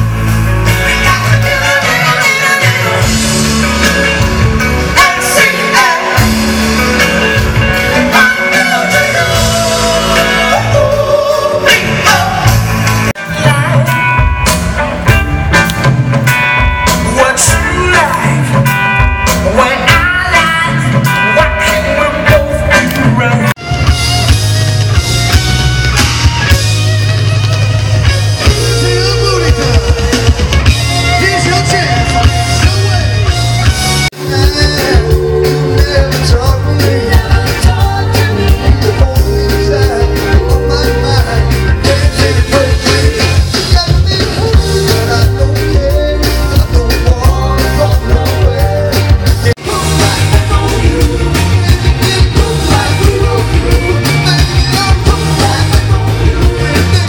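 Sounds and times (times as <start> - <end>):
live rock band with singer: 0.0 - 57.0.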